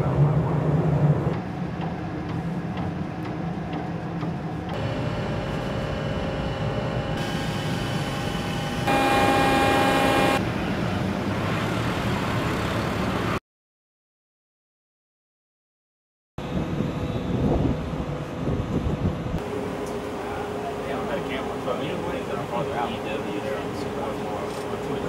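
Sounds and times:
machinery whine: 4.5 - 10.7, 19.4 - 25.0
wind noise: 16.4 - 19.4.

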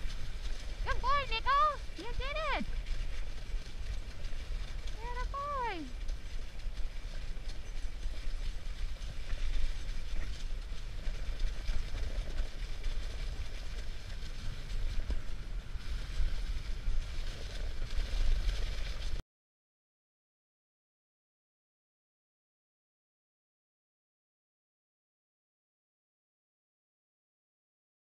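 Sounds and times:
sled runners sliding over snow: 0.0 - 19.2
wind buffeting microphone: 0.0 - 19.2.

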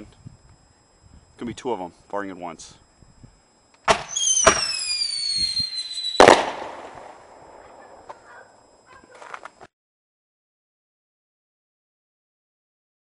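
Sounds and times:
firework shell bursting: 3.8 - 7.7
firework launch bangs: 3.8 - 8.1
high falling whistle: 3.9 - 7.7.

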